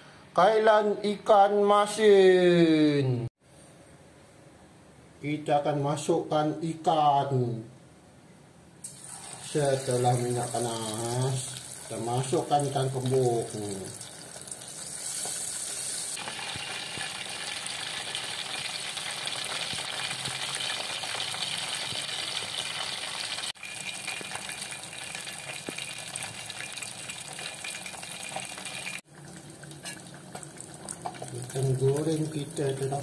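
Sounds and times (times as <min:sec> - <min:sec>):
fish sizzling in hot oil: 0:08.8 - 0:32.9.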